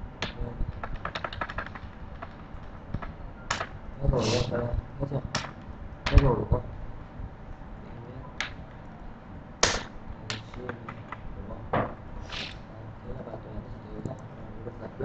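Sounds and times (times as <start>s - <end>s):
low room hum: 0.0s - 15.0s
keyboard taps: 0.2s - 3.7s.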